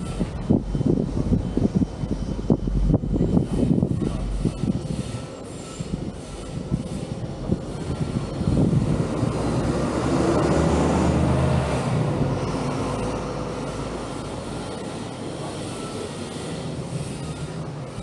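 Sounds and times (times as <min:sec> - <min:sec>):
vehicle low rumble: 0:00.0 - 0:18.0.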